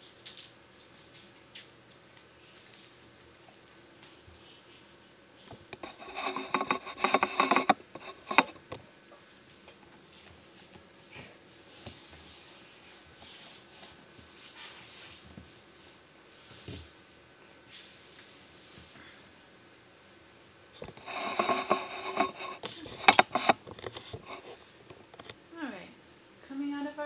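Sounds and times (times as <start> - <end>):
faint rustling: 2.2 - 8.8.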